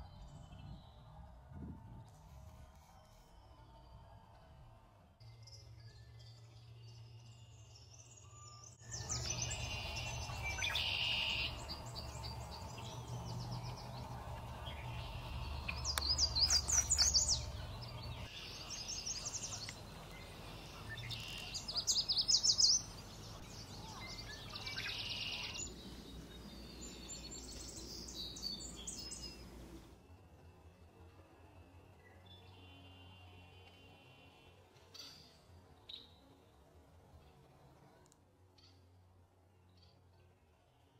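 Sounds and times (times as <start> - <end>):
songbirds singing: 5.2 - 29.9.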